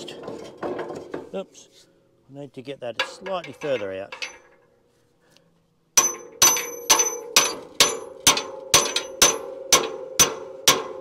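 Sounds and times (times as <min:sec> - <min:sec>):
hammer striking metal pin: 0:06.0 - 0:11.0.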